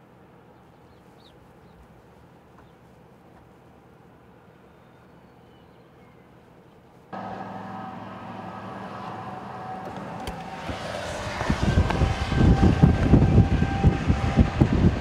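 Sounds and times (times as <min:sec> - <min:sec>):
car hum from inside the cabin: 0:07.1 - 0:11.5
wind buffeting the microphone: 0:10.2 - 0:15.0.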